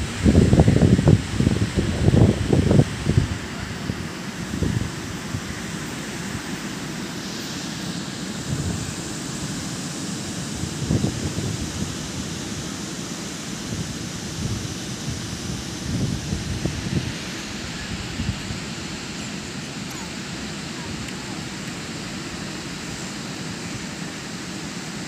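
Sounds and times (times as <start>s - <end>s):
wind buffeting microphone: 0.0s - 6.5s, 8.4s - 9.6s, 10.4s - 12.8s, 13.5s - 22.4s.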